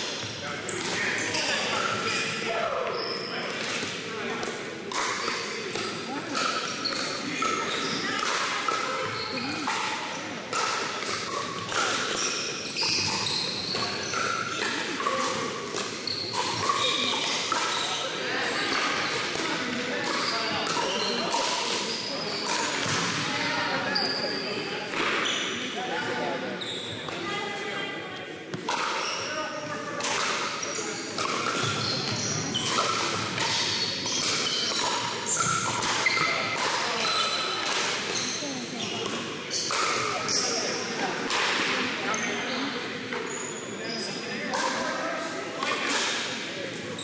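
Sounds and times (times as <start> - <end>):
sneakers squeaking on wood: 12.1 - 15.3, 16.0 - 17.9, 26.6 - 27.1, 30.7 - 40.8.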